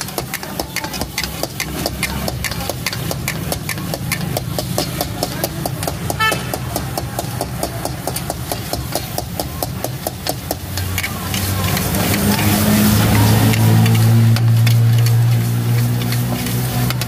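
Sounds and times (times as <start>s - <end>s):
metal spatulas scraping a wok: 0.0s - 17.0s.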